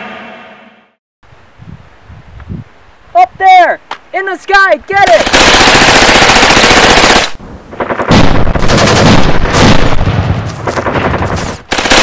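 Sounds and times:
rifles firing rapidly: 0:05.0 - 0:10.0, 0:10.7 - 0:12.0.

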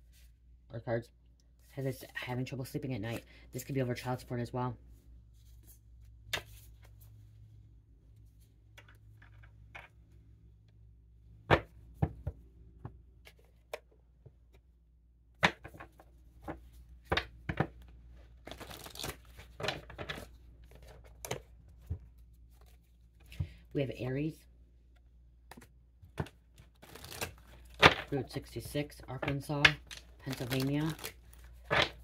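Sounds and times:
paper rustling: 0:29.8 - 0:32.0.

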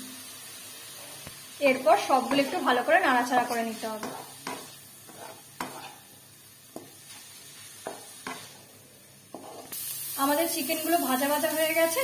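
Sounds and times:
chicken sizzling in a wok: 0:00.0 - 0:12.0
spatula scraping a pan: 0:02.1 - 0:08.7, 0:09.3 - 0:09.8.

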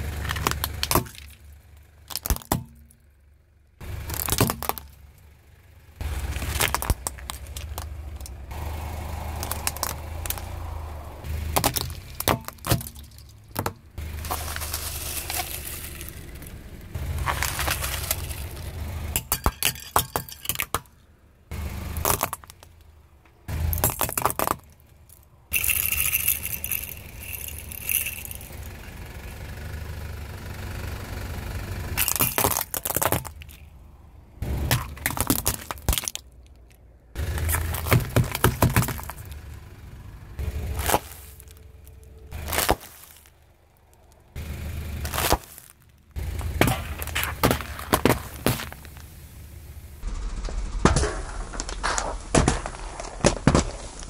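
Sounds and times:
plastic toys cracking and crunching: 0:00.0 - 0:03.0, 0:04.0 - 0:05.0, 0:06.2 - 0:08.4, 0:09.3 - 0:10.6, 0:11.5 - 0:21.0, 0:22.0 - 0:22.9, 0:23.7 - 0:28.7, 0:32.0 - 0:33.7, 0:34.5 - 0:39.5, 0:40.6 - 0:44.2, 0:45.0 - 0:49.1
car rumble: 0:00.0 - 0:54.0.

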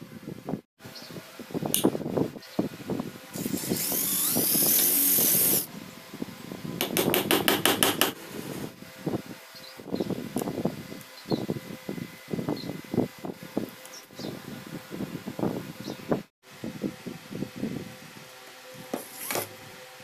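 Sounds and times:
cordless drill whining: 0:03.4 - 0:05.7.

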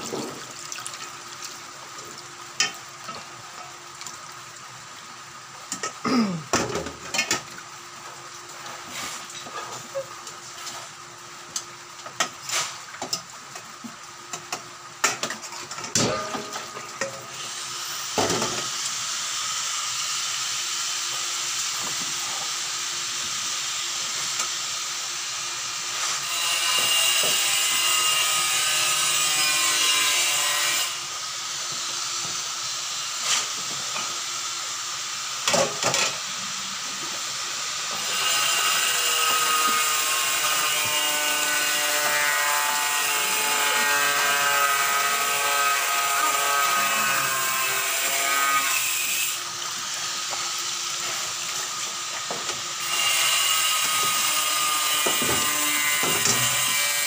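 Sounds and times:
water running into sink: 0:00.0 - 0:04.5.

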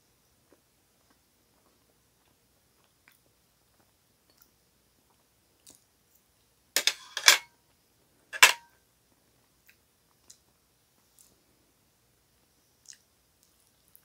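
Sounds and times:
cutlery clicks: 0:06.8 - 0:07.5, 0:08.4 - 0:08.6
metal fork clattering on plate: 0:06.8 - 0:07.5, 0:08.4 - 0:08.7.

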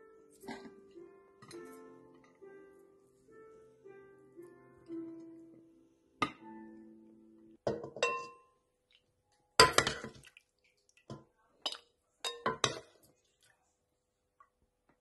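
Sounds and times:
spoon clinking on dishes: 0:07.7 - 0:08.6, 0:11.6 - 0:13.0.

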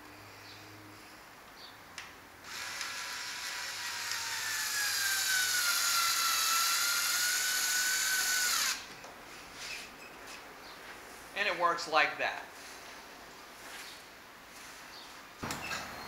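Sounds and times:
cordless drill whining: 0:02.4 - 0:08.9.

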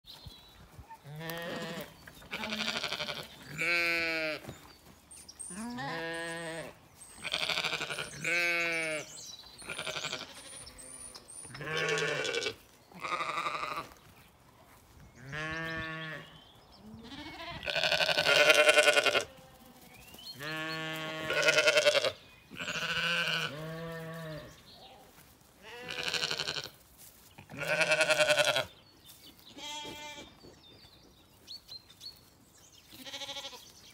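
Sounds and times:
sheep bleating: 0:01.0 - 0:04.4, 0:05.5 - 0:11.0, 0:11.6 - 0:13.9, 0:15.3 - 0:16.3, 0:17.0 - 0:19.8, 0:20.4 - 0:24.6, 0:25.6 - 0:26.8, 0:27.5 - 0:28.7, 0:29.6 - 0:30.3, 0:33.0 - 0:33.6.

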